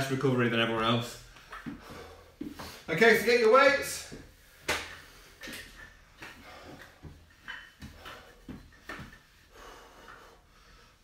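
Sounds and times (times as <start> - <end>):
dumbbells clacking: 1.4 - 2.7, 3.5 - 10.4
soft knocks and shuffles: 3.9 - 9.5.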